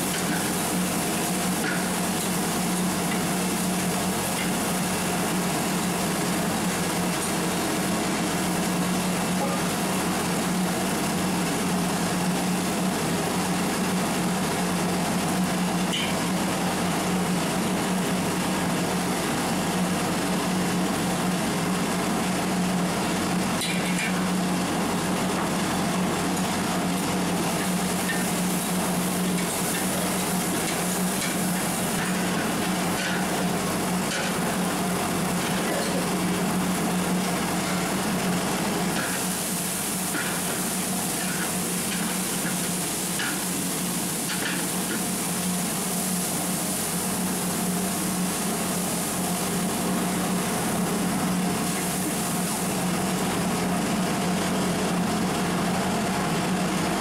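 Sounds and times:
onions sizzling in oil: 0.0s - 11.8s, 26.0s - 52.9s
gas burner roaring: 0.0s - 57.0s.

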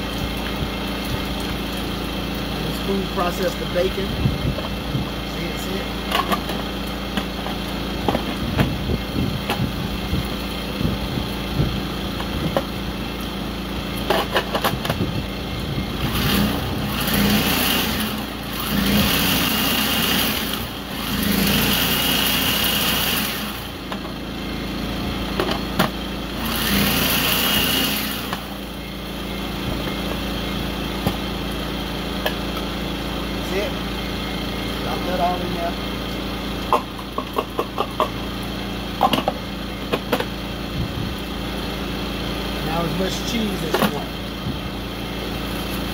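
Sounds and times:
food processor motor whirring: 16.0s - 23.7s, 26.4s - 28.6s.

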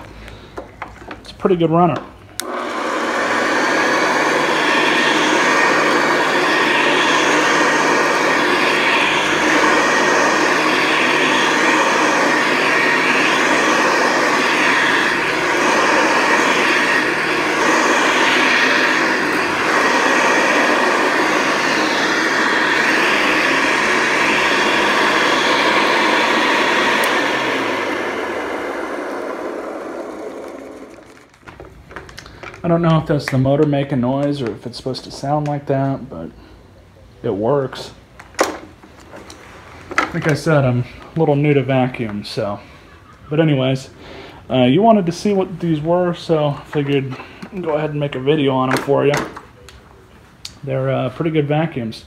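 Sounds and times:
vacuum cleaner running on rug: 2.4s - 31.4s
motor winding down: 2.4s - 31.5s.

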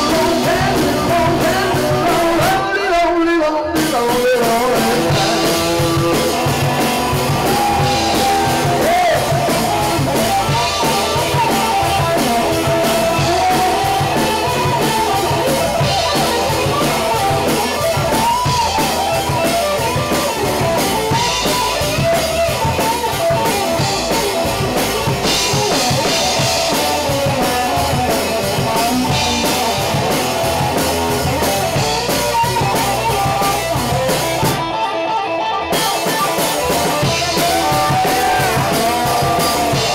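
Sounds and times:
electric bass: 0.0s - 2.8s, 3.8s - 39.9s
drum kit: 0.0s - 39.9s
electric guitar: 0.0s - 39.9s.

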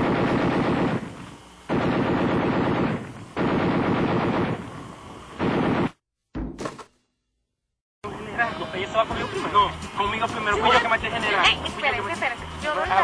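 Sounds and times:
machine-gun fire: 0.0s - 4.8s, 5.4s - 6.0s
low thump: 6.3s - 7.0s.

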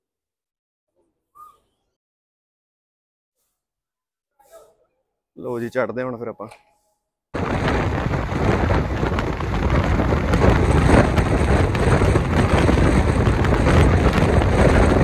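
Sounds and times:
wind over microphone: 7.4s - 15.0s.

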